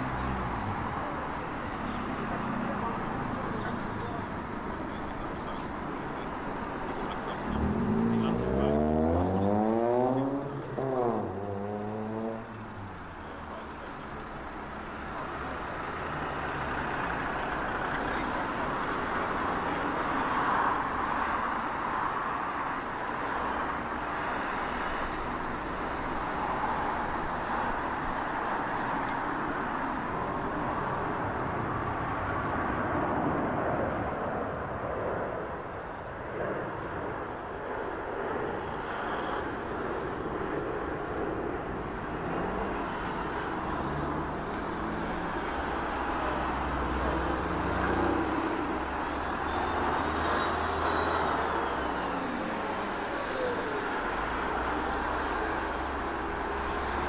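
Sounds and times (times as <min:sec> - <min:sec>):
jet airliner passing overhead: 0:29.5 - 0:57.0.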